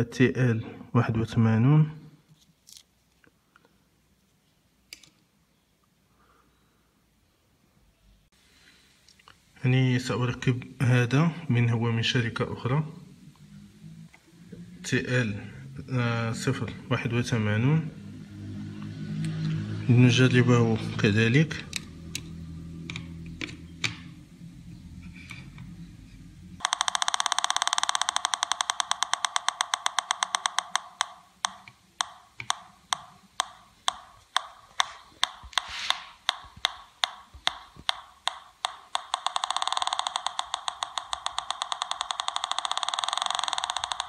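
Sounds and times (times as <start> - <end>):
metal detector buzzing tone: 26.6 - 44.0
metal detector clicks: 26.6 - 44.0.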